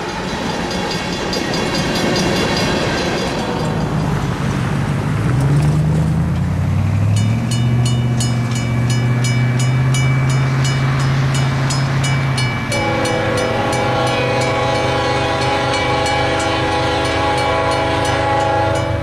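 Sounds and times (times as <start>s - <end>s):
crossing bell ringing: 0.0s - 4.7s, 7.0s - 19.0s
train horn: 12.6s - 19.0s.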